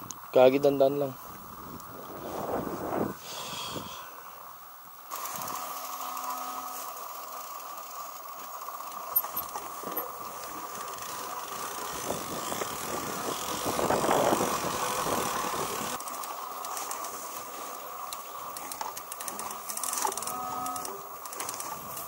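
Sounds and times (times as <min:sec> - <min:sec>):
wind buffeting microphone: 0:01.3 - 0:03.9, 0:11.8 - 0:16.0
bike parts rattling: 0:08.3 - 0:22.0.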